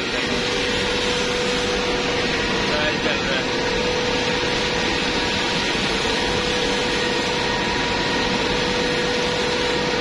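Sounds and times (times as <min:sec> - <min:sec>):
burner blower whirring: 0:00.0 - 0:10.0.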